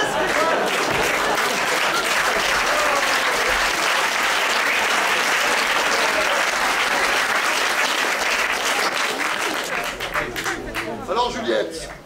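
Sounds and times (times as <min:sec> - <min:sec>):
large audience applauding: 0:00.0 - 0:12.0.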